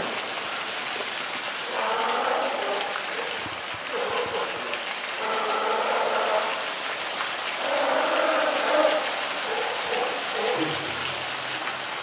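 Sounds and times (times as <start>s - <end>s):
water rushing in pool: 0.0s - 12.0s.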